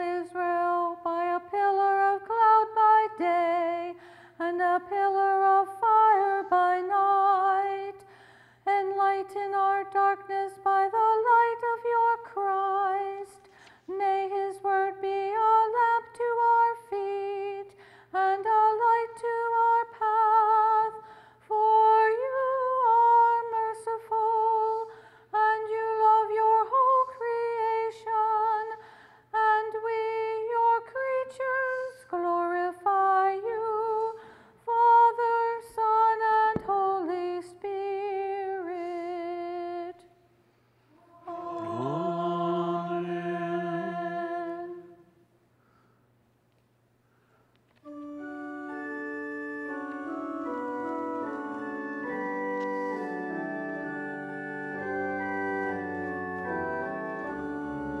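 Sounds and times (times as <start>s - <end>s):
woman chanting: 29.6s - 32.7s, 41.0s - 45.1s.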